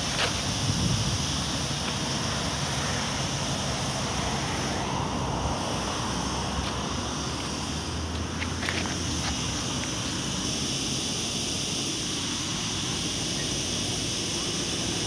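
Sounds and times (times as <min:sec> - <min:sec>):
distant road traffic hiss: 0:00.0 - 0:15.0
wind on microphone: 0:00.4 - 0:01.7.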